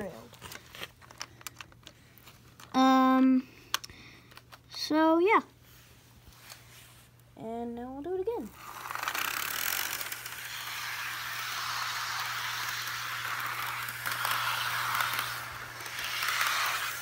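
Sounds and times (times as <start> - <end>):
model train motor whirring: 8.5 - 17.0.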